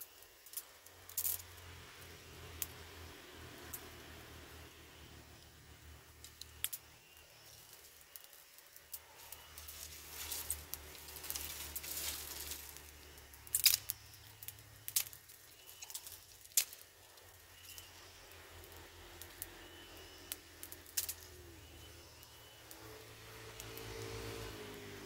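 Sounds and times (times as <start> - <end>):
sticks rustling and scraping: 9.0 - 13.9
sticks cracking: 13.4 - 16.9.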